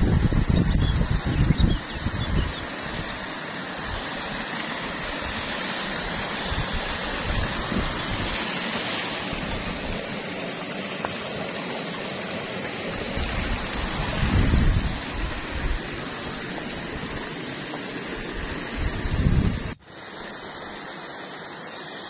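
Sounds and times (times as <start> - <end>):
water rushing over rocks: 0.0 - 22.0.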